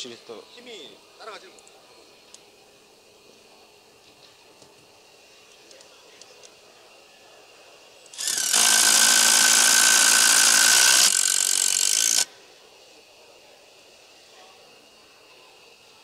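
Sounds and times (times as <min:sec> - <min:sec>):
impact drivers driving screws: 0:08.1 - 0:12.3.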